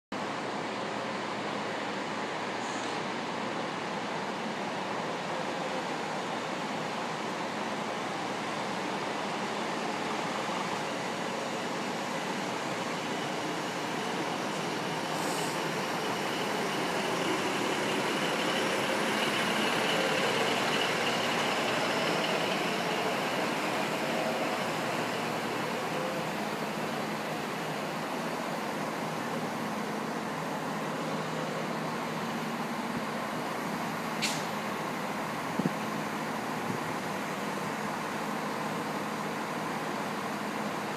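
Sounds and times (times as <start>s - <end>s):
diesel railcar idling: 0.2s - 40.9s
train hum and hiss: 0.2s - 40.9s
short sharp hiss: 15.1s - 15.6s, 34.2s - 34.6s.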